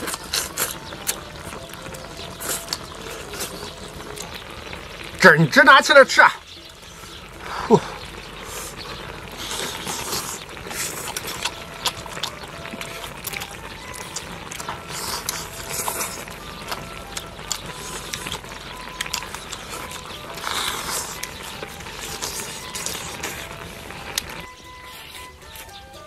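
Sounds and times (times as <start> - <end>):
people chewing and lip-smacking: 0.0 - 5.8, 6.4 - 26.0.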